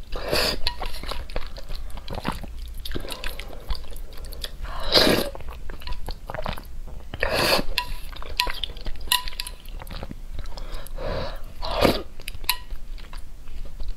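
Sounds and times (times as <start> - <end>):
person slurping noodles: 0.1 - 0.7, 4.7 - 5.4, 7.2 - 8.1, 11.0 - 12.1.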